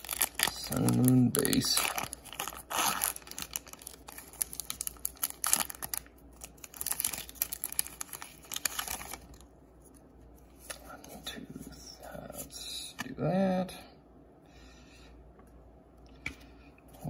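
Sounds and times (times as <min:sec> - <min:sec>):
foil wrapper tearing and crinkling: 0:00.0 - 0:09.4.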